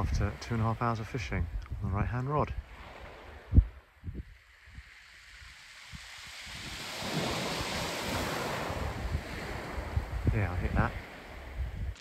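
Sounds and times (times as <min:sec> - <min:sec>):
wind buffeting microphone: 0:00.0 - 0:12.0
waves washing onto shingle: 0:02.6 - 0:03.6, 0:04.3 - 0:12.0.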